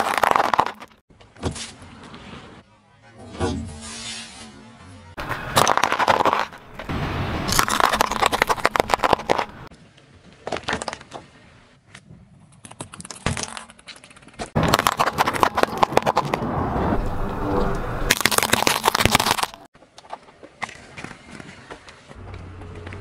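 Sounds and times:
car tyre crushing plastic: 0.0s - 1.5s, 5.2s - 6.9s, 7.5s - 9.7s, 12.6s - 16.4s, 18.1s - 21.0s
plastic cracking and crunching: 7.5s - 9.7s, 12.6s - 16.4s, 18.1s - 19.7s.

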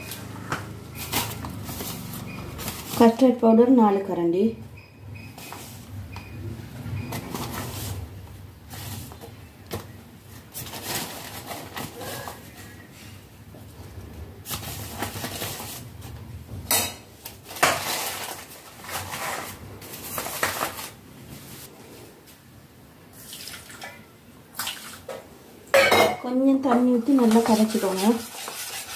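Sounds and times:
paper packet and powder rustling: 1.0s - 3.2s, 10.3s - 13.1s, 14.4s - 16.0s, 17.4s - 21.7s, 27.0s - 28.9s.

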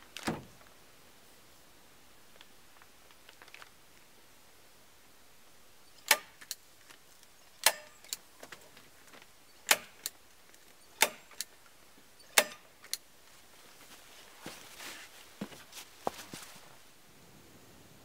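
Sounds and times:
staple gun snapping: 9.7s - 10.2s, 11.0s - 11.5s, 12.4s - 13.0s.

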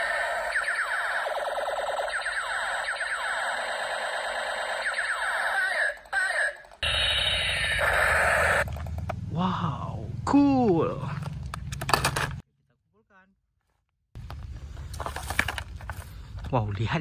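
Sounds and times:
toy gun siren-like tones: 0.0s - 8.7s
toy propeller whirring: 0.0s - 8.7s.

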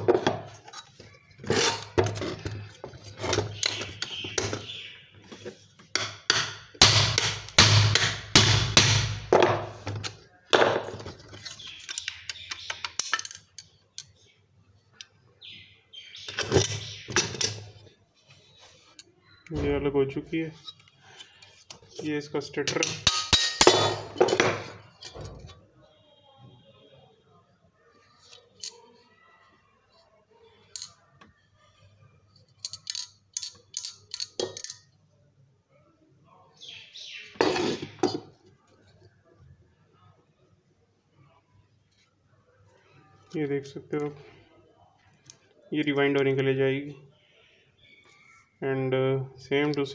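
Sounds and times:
metal parts clicking and tapping: 5.4s - 14.2s, 16.2s - 17.8s, 22.6s - 25.4s, 30.7s - 31.0s, 32.4s - 34.9s.

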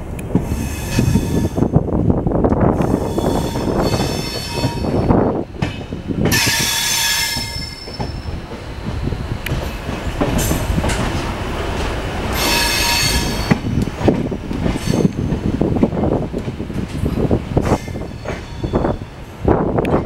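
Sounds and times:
train wheels rumbling over rails: 0.0s - 20.0s
high-pitched wheel squeal: 3.1s - 5.0s, 12.4s - 13.6s.

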